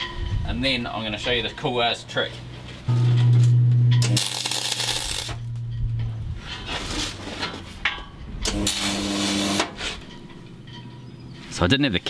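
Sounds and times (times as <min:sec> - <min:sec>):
low steady hum: 0:00.0 - 0:11.2
welding arc hissing: 0:04.0 - 0:05.5, 0:08.5 - 0:09.7.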